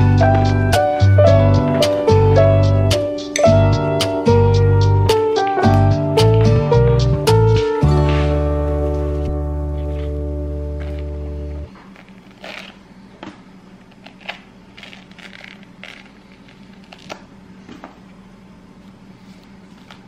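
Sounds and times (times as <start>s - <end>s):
background music: 0.0s - 11.7s
fruit peel crackling and tearing: 10.8s - 12.9s, 13.8s - 17.4s.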